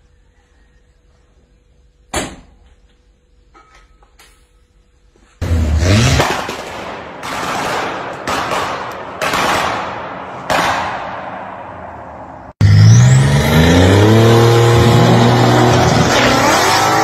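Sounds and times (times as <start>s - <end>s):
car engine revving: 5.4s - 6.5s, 12.6s - 17.0s.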